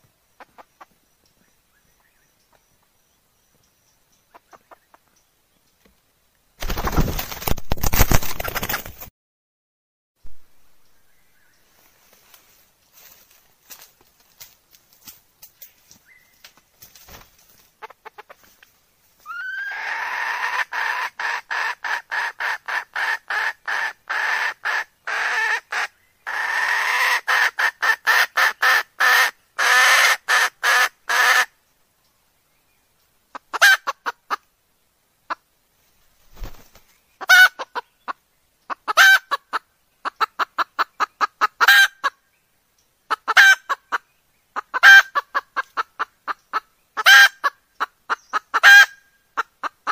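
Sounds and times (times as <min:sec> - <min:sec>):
hen clucking: 0:00.4 - 0:01.0, 0:04.3 - 0:05.1, 0:17.8 - 0:18.6, 0:19.3 - 0:31.5, 0:33.3 - 0:34.5, 0:37.2 - 0:42.2, 0:43.1 - 0:49.9.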